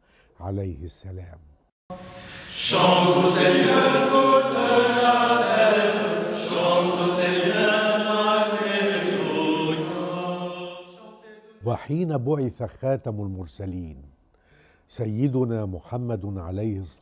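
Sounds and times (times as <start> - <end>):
choir chanting a hymn: 1.9 - 11.7.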